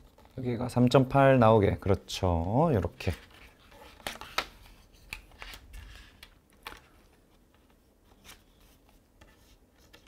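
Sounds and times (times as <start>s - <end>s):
paper rustling and crinkling: 2.4s - 10.0s.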